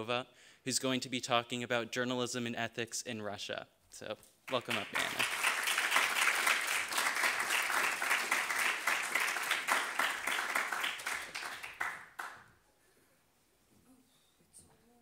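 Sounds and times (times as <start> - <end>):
audience applauding: 4.5 - 12.5.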